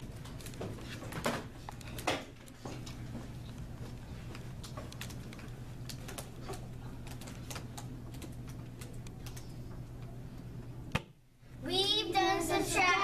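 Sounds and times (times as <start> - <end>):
steady low hum: 0.0 - 13.0
laptop keyboard typing: 4.2 - 10.1.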